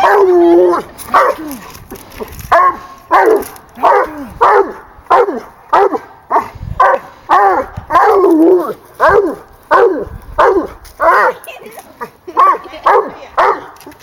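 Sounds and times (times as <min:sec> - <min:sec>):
dog barking: 0:02.5 - 0:08.3, 0:09.0 - 0:11.4, 0:12.4 - 0:13.8.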